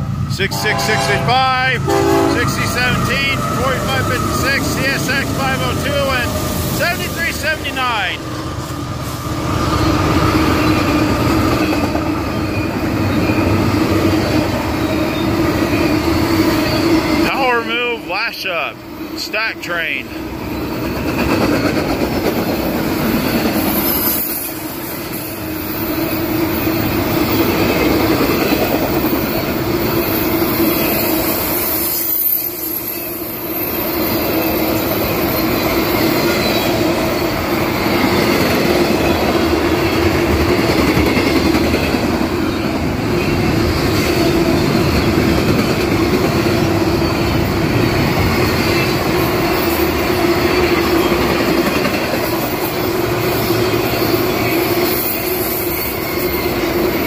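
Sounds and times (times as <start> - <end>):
train wheels on rails: 0.0 - 18.0, 20.1 - 57.0
steady tone: 0.3 - 8.2.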